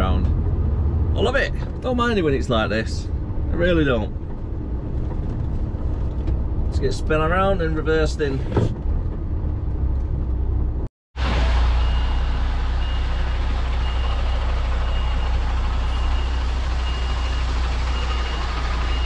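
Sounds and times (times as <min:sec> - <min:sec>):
lorry diesel engine running: 0:09.4 - 0:19.0
reversing alarm beeping: 0:11.6 - 0:19.0.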